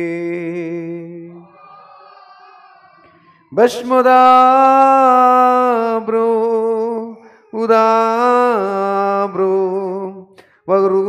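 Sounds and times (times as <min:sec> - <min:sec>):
man chanting: 0:00.0 - 0:01.5, 0:03.5 - 0:11.0.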